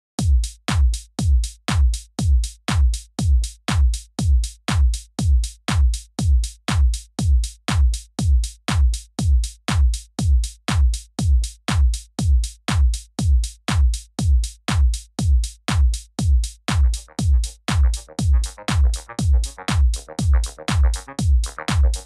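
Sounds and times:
drum machine kick beat: 0.2s - 22.0s
electronic music: 16.8s - 22.0s.

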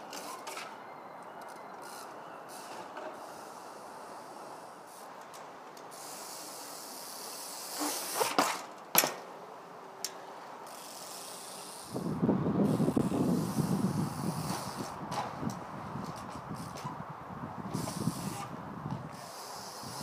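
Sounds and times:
bike striking stone wall: 7.8s - 9.3s, 14.3s - 17.0s
wind rumbling on microphone: 11.9s - 20.0s.

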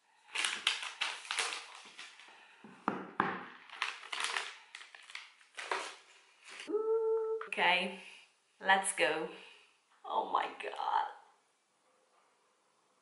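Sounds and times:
plastic shrink wrap crinkling: 0.2s - 2.6s, 3.5s - 6.7s.

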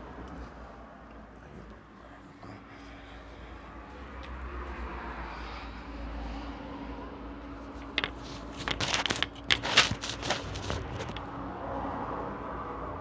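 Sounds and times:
towel rustling and scrunching: 8.0s - 11.2s.

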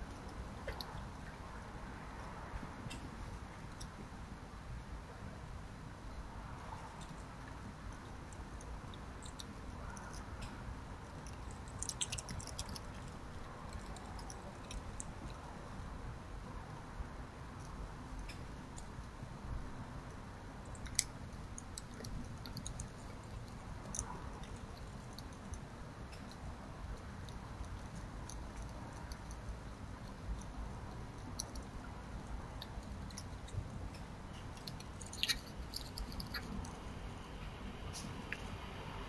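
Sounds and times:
low background noise: 0.0s - 39.0s
fox crunching food: 6.8s - 16.2s, 19.9s - 38.6s.

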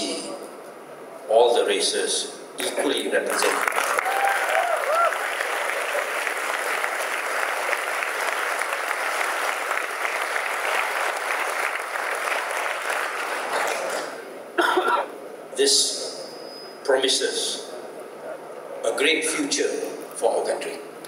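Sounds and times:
audience applauding: 3.3s - 14.2s.

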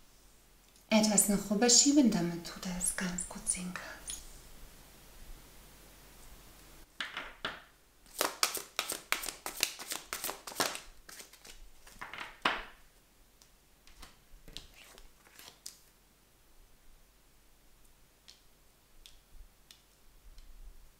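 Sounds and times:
playing cards shuffling: 8.1s - 12.5s, 13.9s - 15.8s.

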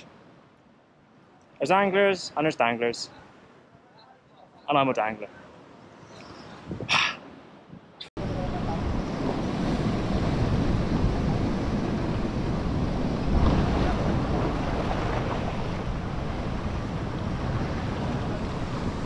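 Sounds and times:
wind buffeting microphone: 6.5s - 7.0s, 7.6s - 19.0s
surf washing against rocks: 8.2s - 19.0s.

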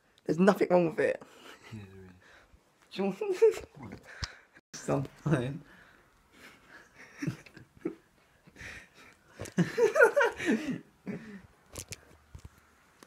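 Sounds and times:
boys laughing: 6.6s - 11.4s.

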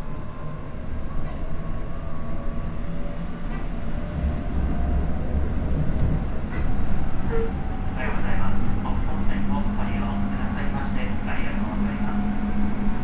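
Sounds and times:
wheels rumbling on rail: 0.0s - 13.0s
train motor whine: 6.5s - 7.7s.

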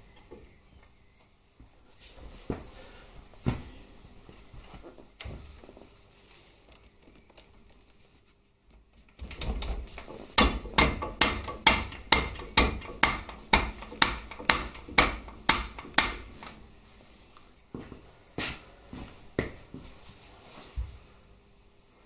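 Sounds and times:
hammer tapping on metal: 10.4s - 16.5s.

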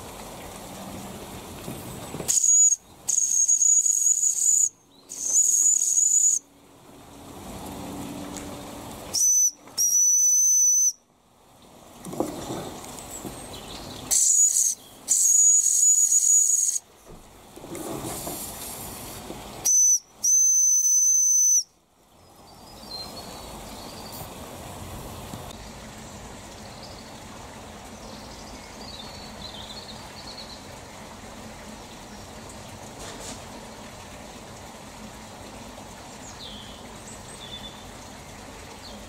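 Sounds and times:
shrill steam whistle blasts: 2.3s - 6.4s, 9.1s - 11.0s, 14.1s - 16.8s, 19.6s - 21.7s
steam hissing: 17.8s - 19.3s.

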